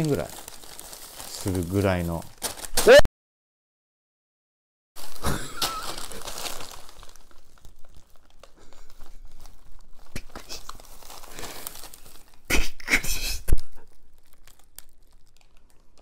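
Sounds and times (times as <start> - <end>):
plastic bags crinkling and rustling: 0.0 - 3.0, 5.0 - 16.0.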